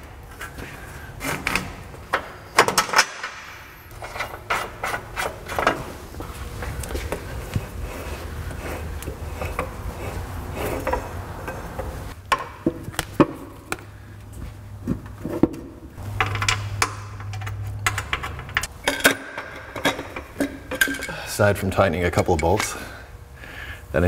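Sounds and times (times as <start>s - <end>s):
metallic clicks and knocks: 16.2s - 21.1s.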